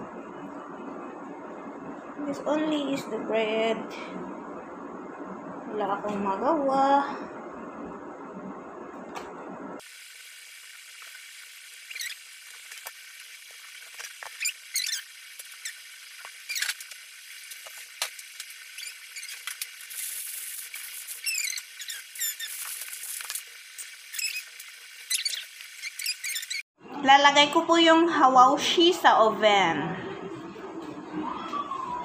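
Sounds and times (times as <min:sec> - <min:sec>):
thin hiss: 0:09.8 - 0:26.6
high-pitched chirps and squeaks: 0:11.8 - 0:12.3, 0:14.0 - 0:17.0, 0:18.1 - 0:26.7.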